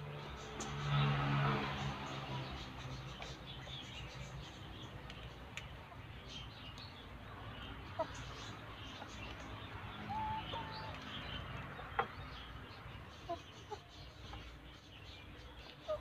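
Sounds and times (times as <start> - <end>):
hens clucking softly: 7.9 - 12.2
hen drawn-out call: 10.1 - 10.9.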